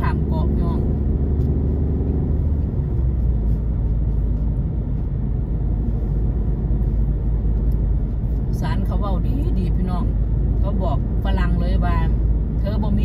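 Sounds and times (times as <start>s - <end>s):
car road and engine rumble: 0.0s - 13.0s.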